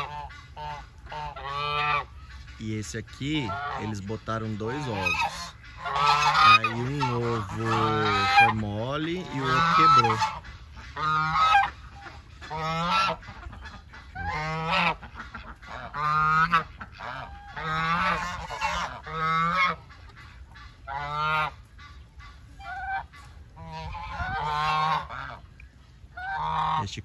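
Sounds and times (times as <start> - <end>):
geese honking: 0.0 - 27.0.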